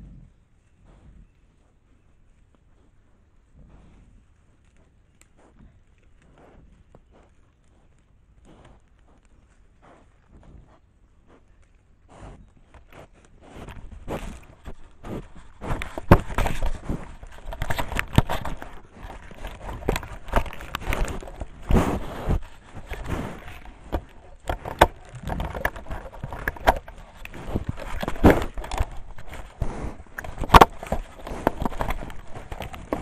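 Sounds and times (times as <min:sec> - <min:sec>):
knocks and scrapes on camera housing: 0:13.6 - 0:33.0.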